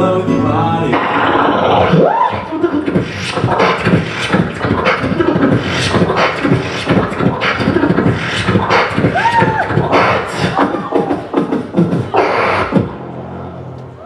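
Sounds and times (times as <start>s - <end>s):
pitched vocal tone: 0.0s - 3.0s
man beatboxing: 0.0s - 12.9s.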